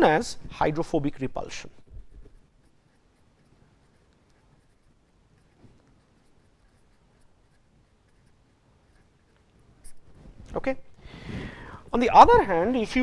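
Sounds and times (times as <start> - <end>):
pen scratching on paper: 1.8 - 10.1.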